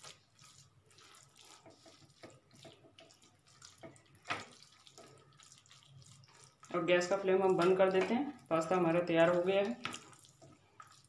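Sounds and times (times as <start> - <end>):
spatula stirring thick pasta: 0.0 - 11.0.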